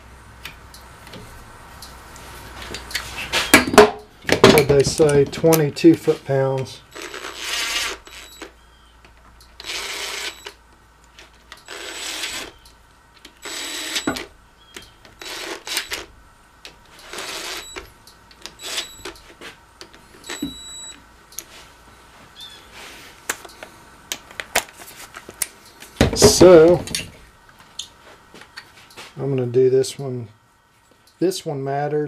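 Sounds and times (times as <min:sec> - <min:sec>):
cordless drill driving bolts: 0:06.9 - 0:08.6, 0:09.5 - 0:10.6, 0:11.5 - 0:12.6, 0:13.2 - 0:16.1, 0:16.9 - 0:19.2.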